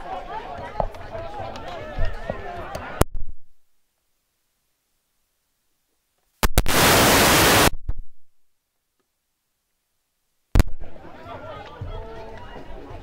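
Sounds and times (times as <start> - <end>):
burst of static hiss: 6.4 - 8.2.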